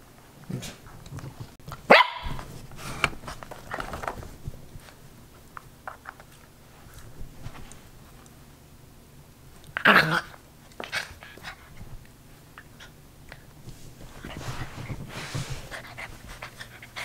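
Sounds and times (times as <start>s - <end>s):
puppy barking: 1.9s - 2.4s.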